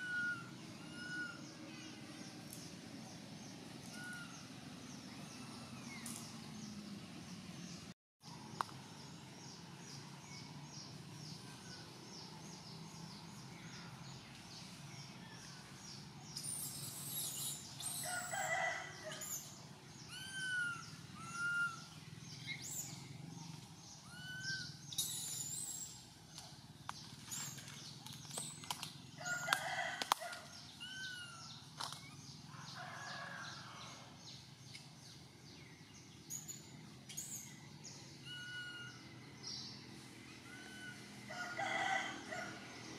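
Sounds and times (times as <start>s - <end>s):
baby monkey squealing cries: 0.0s - 1.4s, 20.1s - 21.9s, 24.0s - 25.8s, 30.8s - 31.5s, 38.2s - 39.0s.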